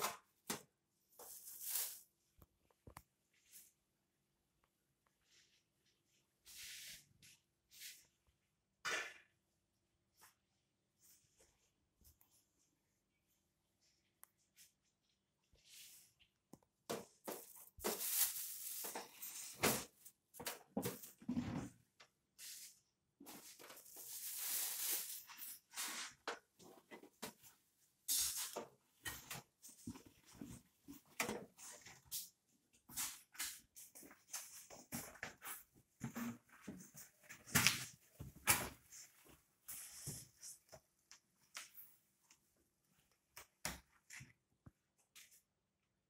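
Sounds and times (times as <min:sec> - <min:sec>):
plastic wrapping crinkling: 0:17.4 - 0:19.3.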